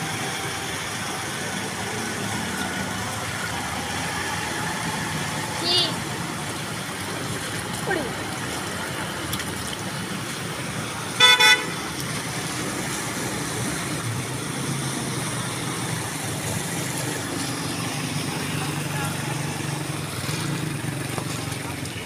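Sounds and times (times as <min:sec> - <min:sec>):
traffic moving through floodwater: 0:00.0 - 0:22.0
vehicle horn toots: 0:11.2 - 0:11.8.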